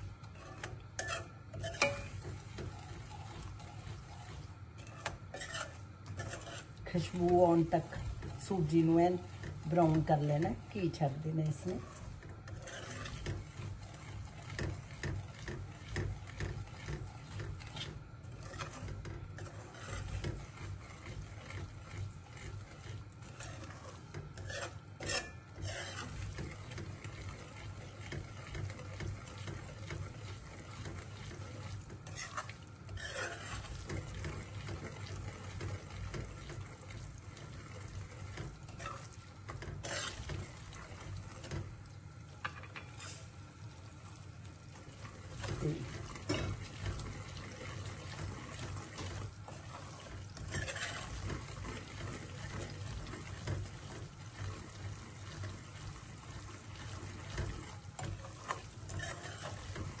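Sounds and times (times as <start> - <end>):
metal ladle scraping pan: 0.0 - 41.7, 42.4 - 43.4, 44.9 - 60.0.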